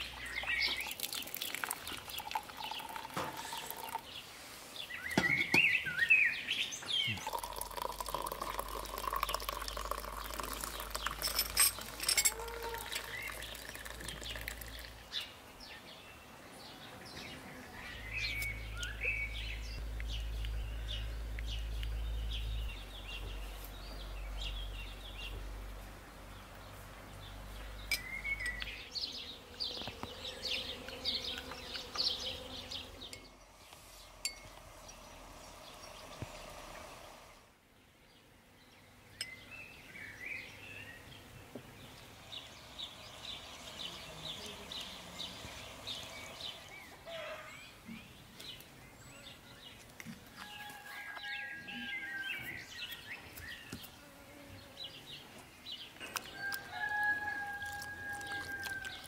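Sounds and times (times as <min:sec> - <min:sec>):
small birds chirping: 0:00.0 - 0:37.0, 0:37.7 - 0:59.0
tea pouring into a mug: 0:00.1 - 0:04.2, 0:07.1 - 0:15.2, 0:56.1 - 0:59.0.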